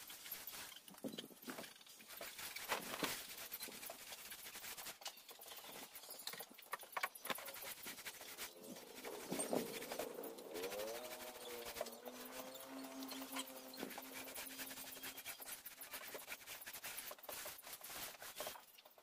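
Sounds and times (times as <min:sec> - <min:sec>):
paint roller rubbing on plywood: 0:02.0 - 0:06.1, 0:07.2 - 0:18.6
wavering pitched whine: 0:08.2 - 0:15.5.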